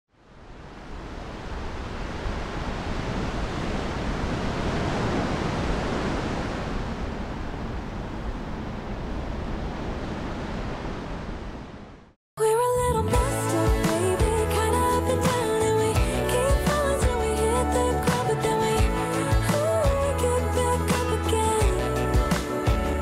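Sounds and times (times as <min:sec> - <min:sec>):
wind: 0:00.1 - 0:12.2
music: 0:12.4 - 0:23.0
surf: 0:12.8 - 0:23.0.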